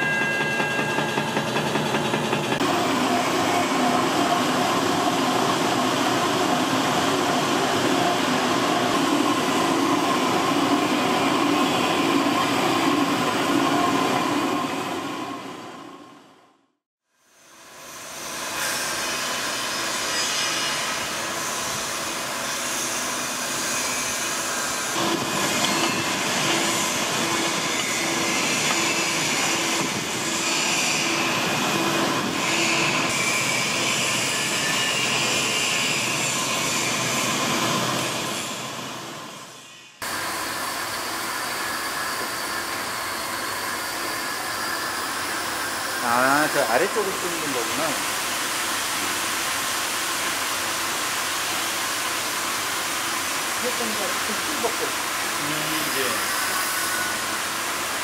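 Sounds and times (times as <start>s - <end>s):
drilling machine drone: 0.0s - 14.4s.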